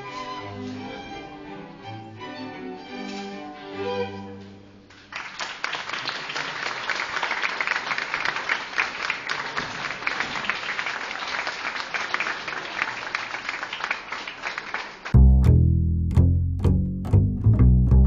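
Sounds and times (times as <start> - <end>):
bowed string music: 0.0 - 4.9, 15.2 - 18.0
people applauding: 4.9 - 15.2.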